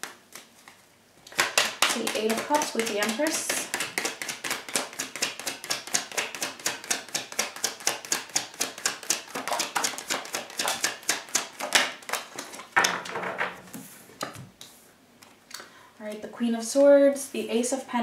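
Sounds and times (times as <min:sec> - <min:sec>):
cards being shuffled: 0:00.0 - 0:12.8.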